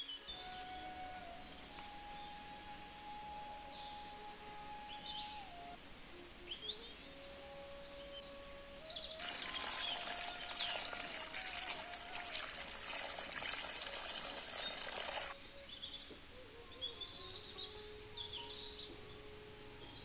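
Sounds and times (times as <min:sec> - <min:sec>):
birds chirping: 0:00.0 - 0:20.0
leaves rustling into basket: 0:07.1 - 0:15.4.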